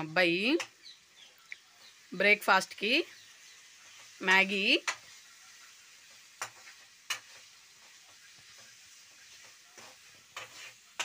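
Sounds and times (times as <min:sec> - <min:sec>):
vegetables sizzling in oil: 0:00.0 - 0:11.0
metal spatula scraping pan: 0:04.8 - 0:11.0.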